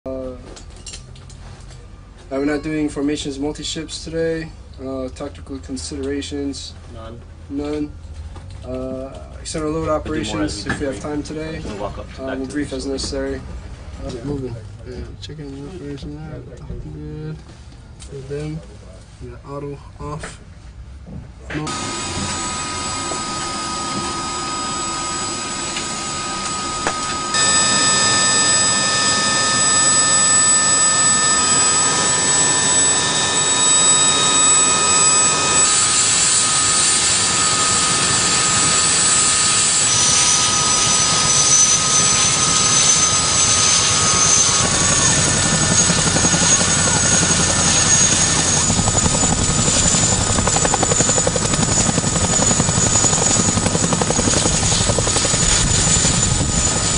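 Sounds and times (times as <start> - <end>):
helicopter engines whining: 9.5 - 14.8, 21.6 - 56.9
helicopter rotor noise: 21.6 - 56.9.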